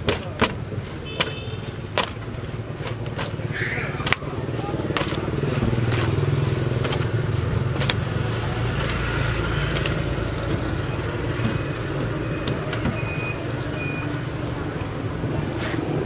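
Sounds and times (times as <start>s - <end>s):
vehicle engine running: 3.4s - 16.0s.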